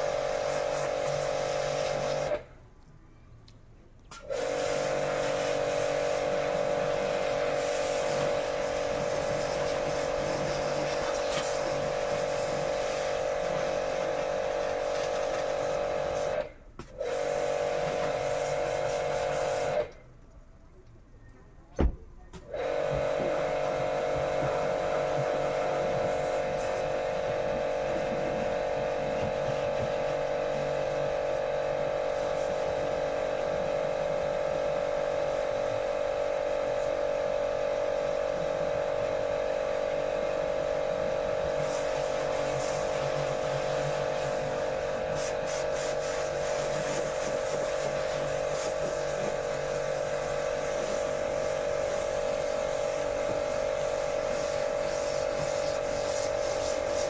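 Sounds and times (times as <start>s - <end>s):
pressure washer motor humming: 0.0s - 2.5s, 4.2s - 20.0s, 22.5s - 57.0s.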